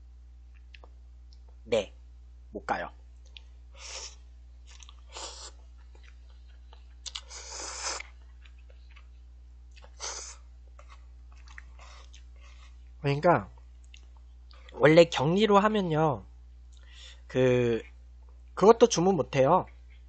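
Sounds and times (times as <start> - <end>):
man chewing: 3.2 - 12.9, 13.6 - 14.8
man slurping noodles: 5.1 - 5.6, 7.1 - 8.0.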